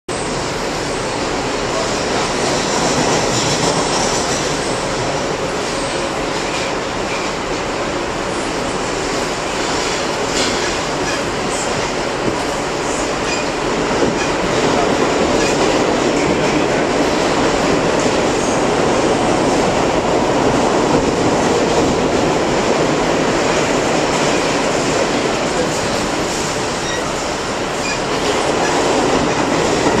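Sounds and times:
subway train running on rails: 0.1 - 30.0.

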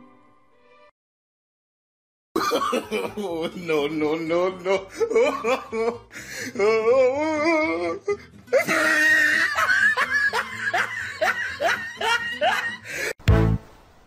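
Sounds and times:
person laughing: 2.4 - 13.2
cheerful music with steady beat: 13.2 - 13.7.

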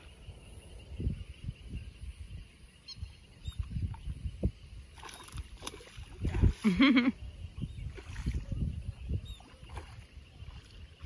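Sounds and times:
fish thrashing and splashing water: 5.0 - 6.7, 9.4 - 11.0.

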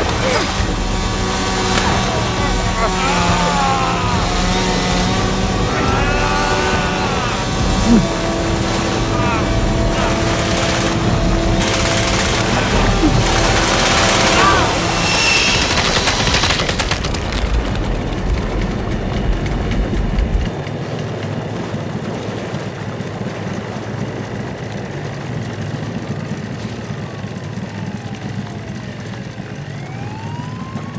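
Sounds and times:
low rumble: 0.0 - 20.5
sirens wailing: 0.0 - 20.5, 26.6 - 30.9.

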